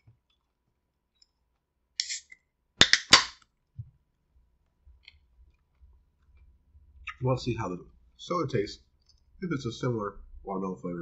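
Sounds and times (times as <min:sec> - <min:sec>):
soda can opening: 0:02.0 - 0:03.4.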